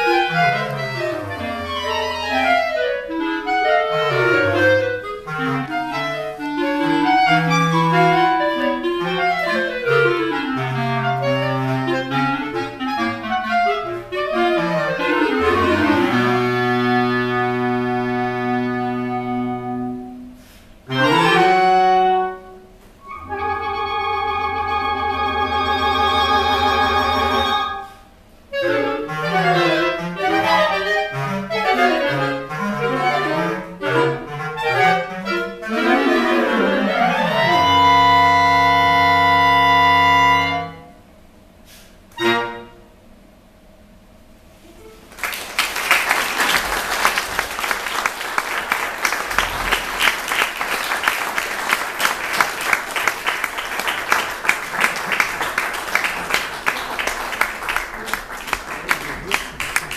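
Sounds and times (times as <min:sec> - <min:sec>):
clarinet quartet playing: 0:00.0 - 0:41.1, 0:42.1 - 0:43.1, 0:44.5 - 0:59.9
audience applauding: 0:45.0 - 0:59.9.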